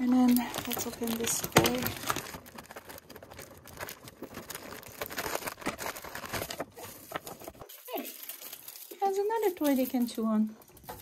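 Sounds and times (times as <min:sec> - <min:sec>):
plastic packaging crinkling: 0:00.0 - 0:11.0
wooden toy pieces clattering: 0:00.1 - 0:02.3.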